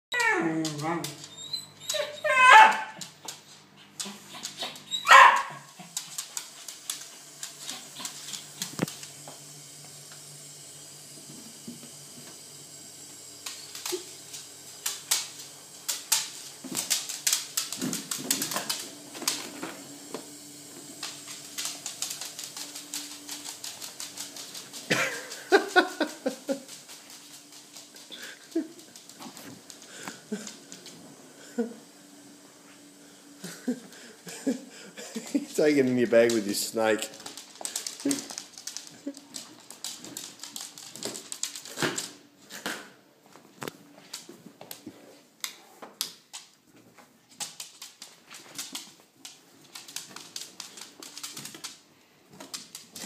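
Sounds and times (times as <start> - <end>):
claws clicking on wooden floor: 0.2 - 9.2, 13.4 - 19.7, 21.0 - 30.9, 36.2 - 42.2, 47.3 - 53.0
dog barking: 2.4 - 3.0, 5.0 - 5.7.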